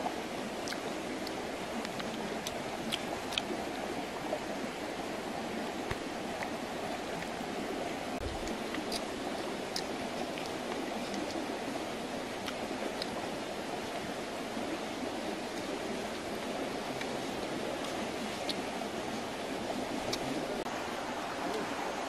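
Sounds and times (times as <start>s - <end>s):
clicks of eating: 0.6s - 3.5s.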